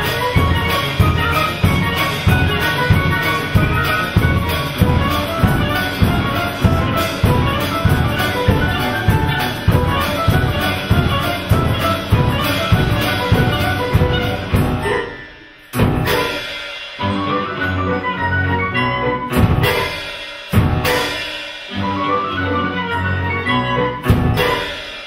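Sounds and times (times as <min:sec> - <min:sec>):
double bass: 0:00.0 - 0:14.9, 0:15.8 - 0:16.3, 0:17.0 - 0:20.0, 0:20.6 - 0:24.7
violin: 0:00.0 - 0:15.0, 0:17.0 - 0:19.8, 0:21.7 - 0:24.7
clarinet: 0:00.0 - 0:15.4, 0:17.0 - 0:20.0, 0:21.7 - 0:24.8
flute: 0:00.0 - 0:15.5, 0:17.0 - 0:19.6, 0:21.7 - 0:24.7
grand piano: 0:00.0 - 0:16.3.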